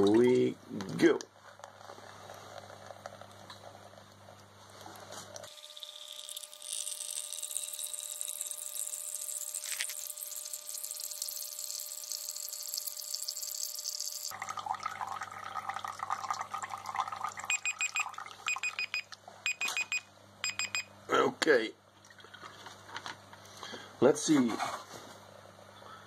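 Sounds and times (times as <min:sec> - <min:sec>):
phone timer alarm beeping: 0:17.5 - 0:20.9.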